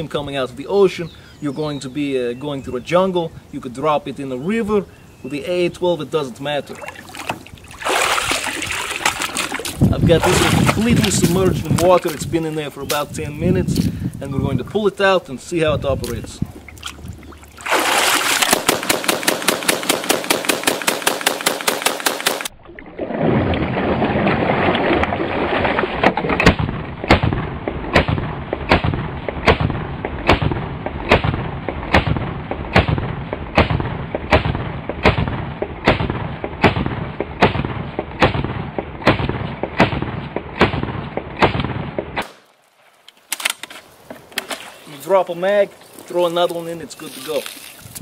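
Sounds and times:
automatic shotgun firing: 0:18.4 - 0:22.5.

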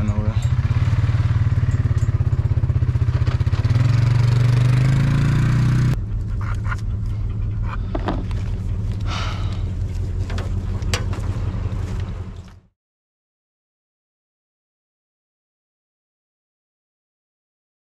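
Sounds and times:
rattles and squeaks: 0:00.0 - 0:00.8, 0:01.5 - 0:03.6, 0:06.0 - 0:12.5
truck engine idling: 0:06.0 - 0:12.7.

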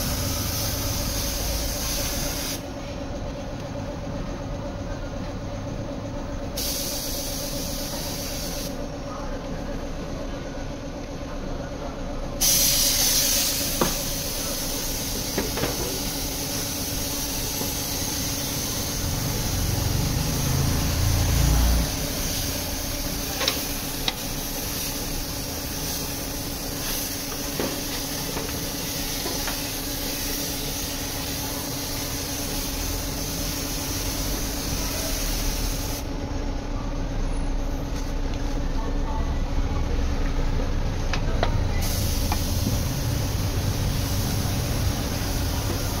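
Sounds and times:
paint spray gun hissing: 0:00.0 - 0:02.7, 0:06.6 - 0:08.8, 0:12.4 - 0:36.1, 0:41.8 - 0:46.0
steady low hum: 0:00.0 - 0:46.0.

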